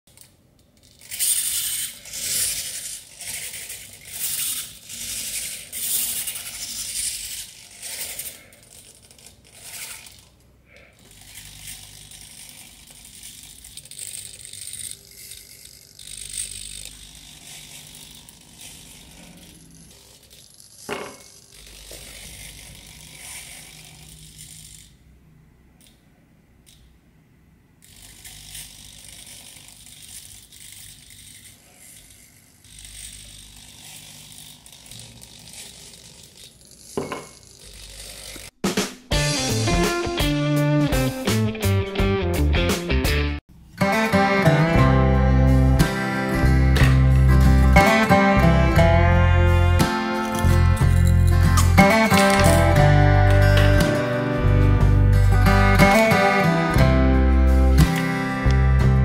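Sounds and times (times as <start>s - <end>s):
servo motors whirring: 1.0s - 25.0s, 27.8s - 38.6s.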